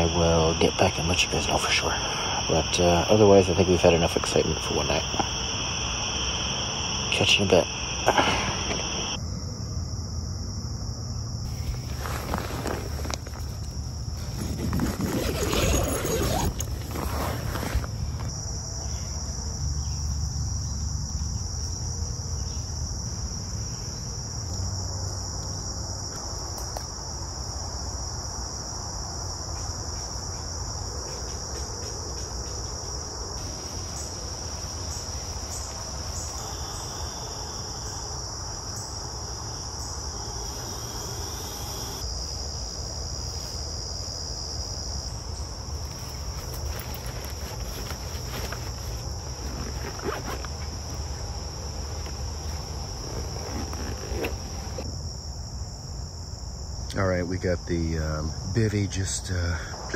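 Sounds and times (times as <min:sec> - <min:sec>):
high-pitched insect chorus: 0:00.0 - 0:59.9
rustling and handling noises: 0:11.5 - 0:18.3, 0:45.6 - 0:54.8.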